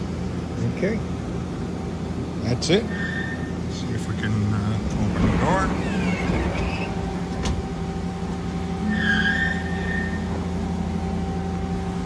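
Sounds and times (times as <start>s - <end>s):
machine hum: 3.4s - 12.0s
brief high squeak: 8.8s - 10.3s.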